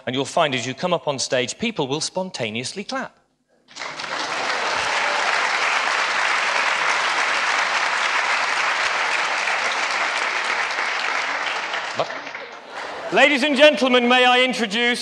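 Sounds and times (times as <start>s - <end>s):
audience applauding: 3.7s - 14.1s.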